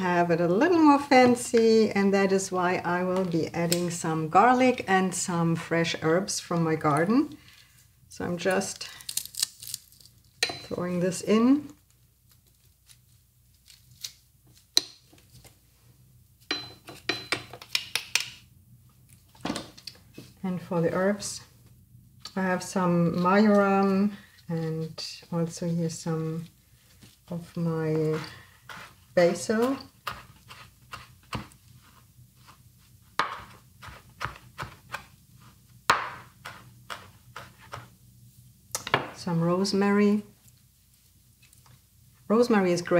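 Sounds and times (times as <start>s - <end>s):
knife chopping on cutting board: 33.2s - 35.1s, 35.9s - 37.9s.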